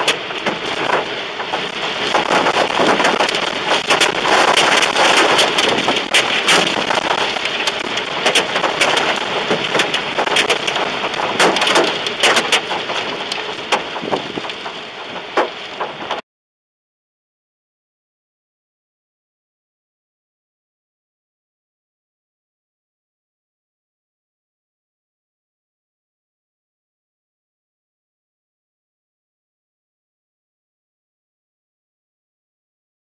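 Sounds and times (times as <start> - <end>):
rain hitting car body: 0.0 - 16.2
wind and rain rushing: 0.0 - 16.2.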